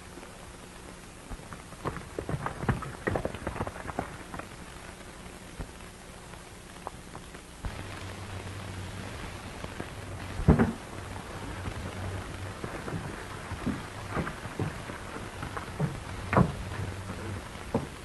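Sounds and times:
low hum: 0:00.0 - 0:18.0
old film hiss and crackle: 0:00.0 - 0:18.0
horse hoofbeats on soft ground: 0:01.4 - 0:04.9, 0:09.3 - 0:18.0.

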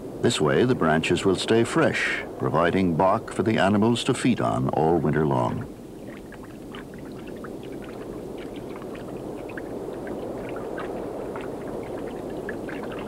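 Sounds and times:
muffled underwater rushing: 0:00.0 - 0:13.0
bubbling clicks and pops: 0:06.0 - 0:13.0.

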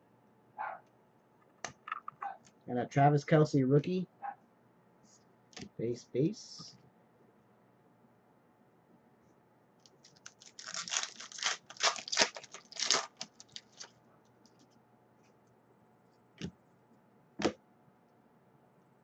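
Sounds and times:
wrapper tearing with crackling rips: 0:09.9 - 0:13.9.

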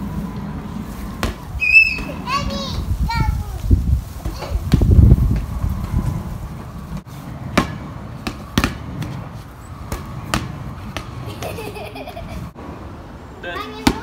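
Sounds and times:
ball bouncing on pavement: 0:01.1 - 0:02.2, 0:04.2 - 0:06.2, 0:07.4 - 0:11.7, 0:13.7 - 0:14.0.

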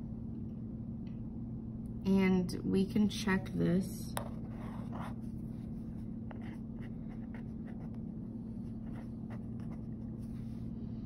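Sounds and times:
steady low hum: 0:00.0 - 0:11.0
pen scratching on paper: 0:04.2 - 0:05.3, 0:06.3 - 0:08.0, 0:08.8 - 0:10.2.

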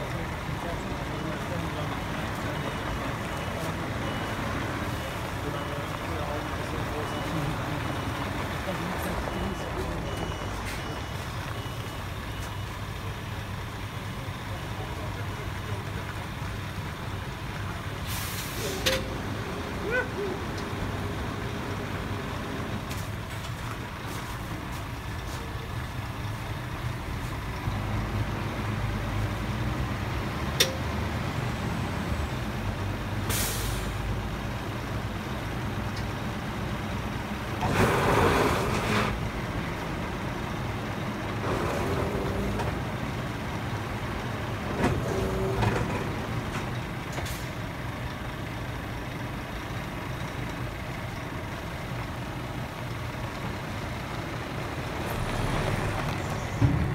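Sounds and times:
truck engine idling: 0:00.0 - 0:56.9
air brake hissing: 0:18.0 - 0:19.1, 0:33.3 - 0:34.0.

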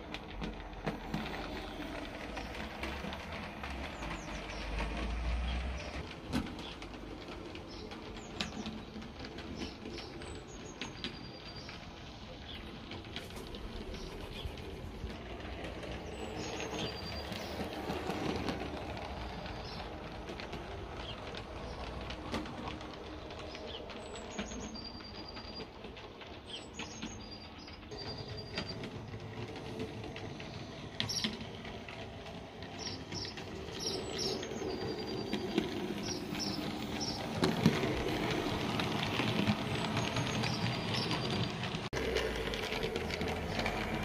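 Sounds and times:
model train running on track: 0:00.0 - 0:44.0
birds chirping and whistling: 0:32.6 - 0:41.8.

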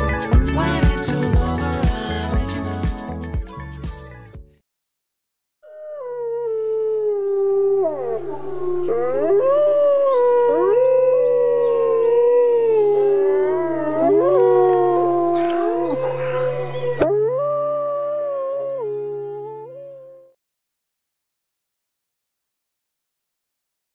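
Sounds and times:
wolves howling in chorus: 0:06.2 - 0:20.0.

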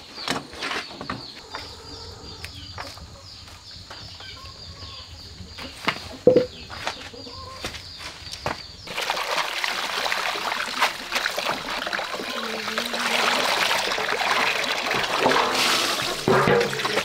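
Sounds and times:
greens splashing in water: 0:08.9 - 0:17.0
tap water running into basin: 0:08.9 - 0:17.0.

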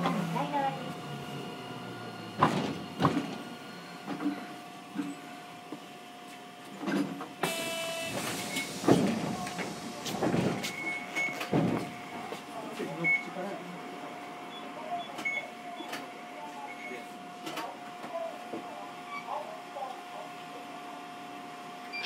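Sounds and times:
tram inverter tone: 0:00.0 - 0:05.7, 0:07.4 - 0:17.0
wheel and track noise: 0:08.1 - 0:12.9.

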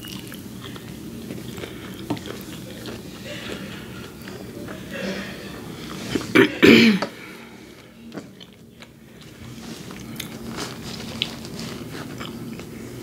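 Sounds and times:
wet chewing: 0:00.0 - 0:04.9, 0:08.1 - 0:12.7.

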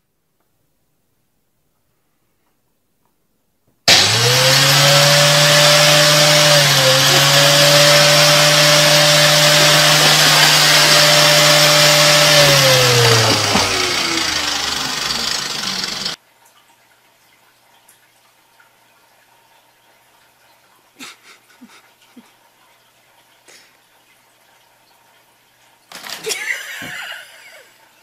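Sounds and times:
electric motor with rushing hiss: 0:03.9 - 0:16.2.

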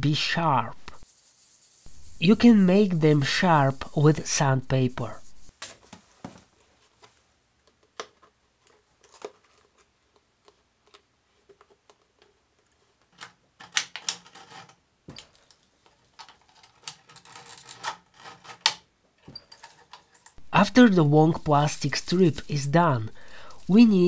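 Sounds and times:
crinkly plastic scraping: 0:13.6 - 0:18.8.

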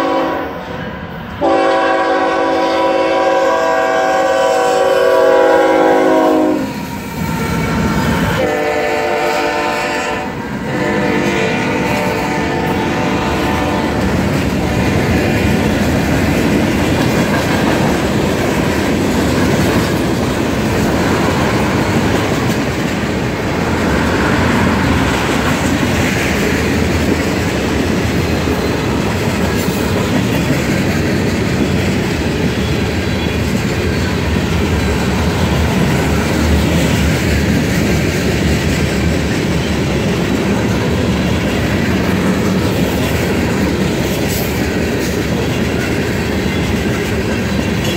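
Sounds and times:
steel wheels rumbling on rail: 0:00.0 - 0:47.9
clickety-clack over rail joints: 0:10.8 - 0:47.9.

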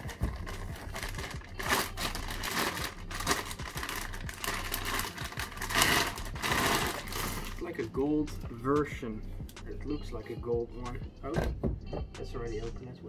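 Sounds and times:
plastic wrapping crinkling: 0:00.0 - 0:07.7.

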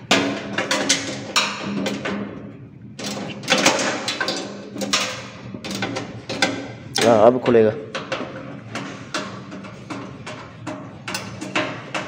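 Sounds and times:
tools knocking on sheet metal: 0:03.0 - 0:12.0.

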